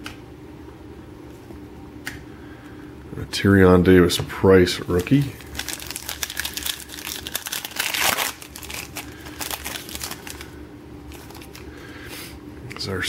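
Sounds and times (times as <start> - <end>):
foil wrapper tearing and crinkling: 4.8 - 11.7.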